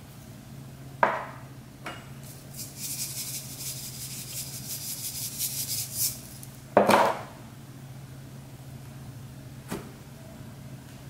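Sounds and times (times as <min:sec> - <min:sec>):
sequins rattling in container: 0:02.3 - 0:06.5.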